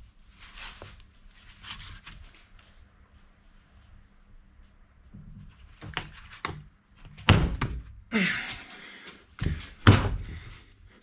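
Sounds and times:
rubber tire thunking on rim: 0:09.4 - 0:10.4.

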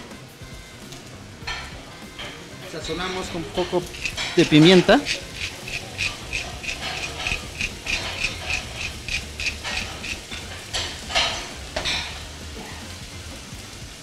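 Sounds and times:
pepper mill grinding clicks: 0:03.8 - 0:10.4.

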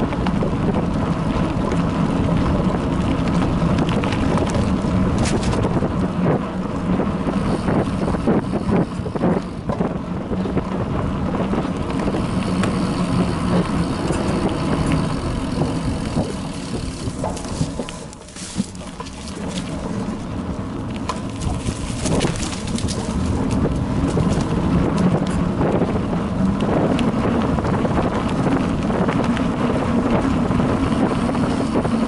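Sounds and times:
bicycle tyre rumble: 0:00.0 - 0:32.0
bike knocks and rattles: 0:00.0 - 0:32.0
wind noise: 0:00.0 - 0:32.0.

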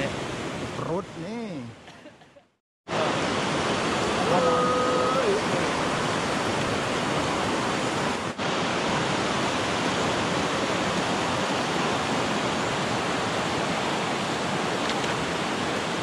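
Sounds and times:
river rushing over boulders: 0:02.9 - 0:16.0.

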